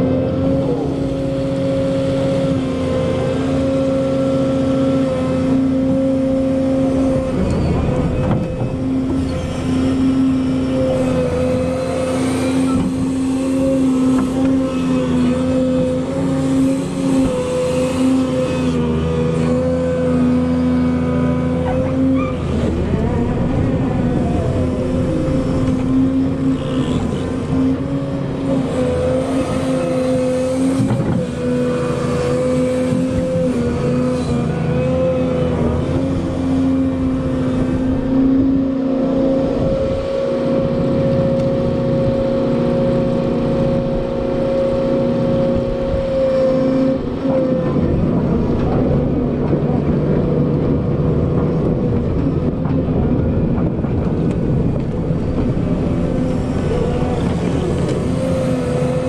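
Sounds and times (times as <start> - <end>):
excavator engine and hydraulics: 0.0 - 59.0
hydraulic pump whine: 0.0 - 59.0.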